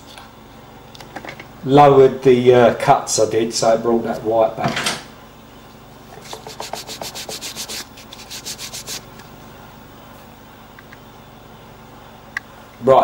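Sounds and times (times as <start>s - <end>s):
rubbing on metal coin: 6.2s - 9.1s.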